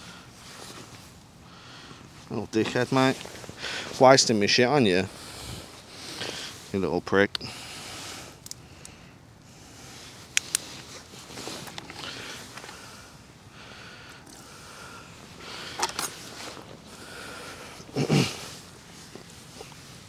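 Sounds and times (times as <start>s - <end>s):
handling rustling: 9.9s - 13.0s, 15.5s - 20.0s.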